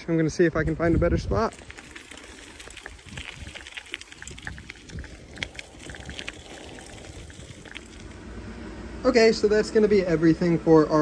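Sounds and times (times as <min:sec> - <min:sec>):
footsteps crunching on gravel: 0:00.0 - 0:08.2.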